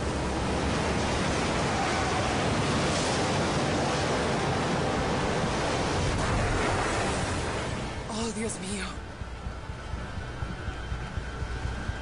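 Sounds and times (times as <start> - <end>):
floodwater splashing: 0.0 - 8.1
heavy rain: 0.0 - 9.0
wind: 0.0 - 12.0.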